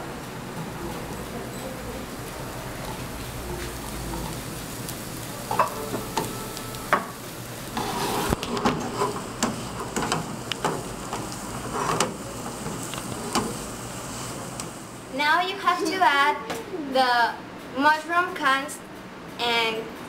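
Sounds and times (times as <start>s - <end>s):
mushrooms sizzling in a pan: 0.0s - 15.1s
spatula scraping and clacking on pan: 7.7s - 13.6s.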